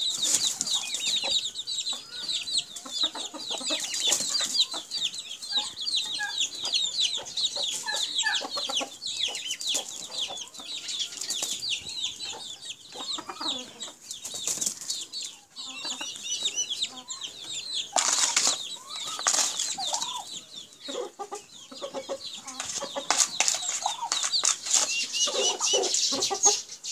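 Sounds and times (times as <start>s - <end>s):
chicken clucking: 0.0s - 26.9s
high-pitched chirping: 15.6s - 26.8s.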